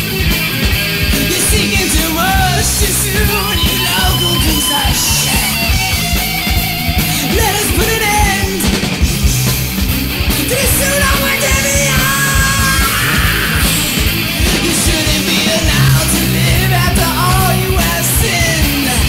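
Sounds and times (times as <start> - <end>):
punk metal band playing: 0.0 - 19.0
person singing: 1.1 - 5.9, 7.1 - 8.8, 10.5 - 14.0, 14.6 - 19.0.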